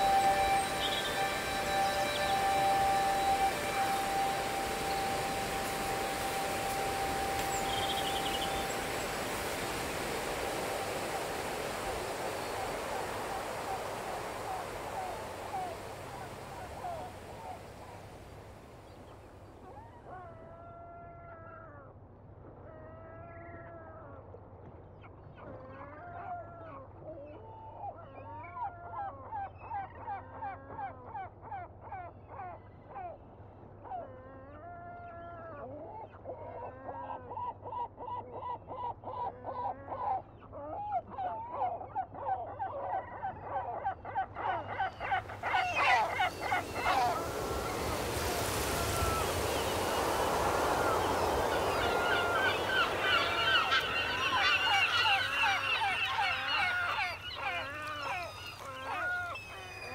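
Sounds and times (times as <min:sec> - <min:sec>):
geese honking: 0:00.0 - 0:18.2, 0:44.8 - 0:59.7.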